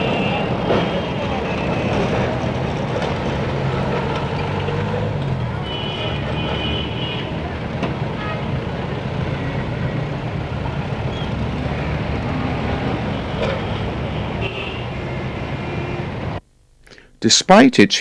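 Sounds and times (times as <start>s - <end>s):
traffic engines rumbling: 0.0s - 16.4s
short high car horn toot: 13.1s - 14.9s.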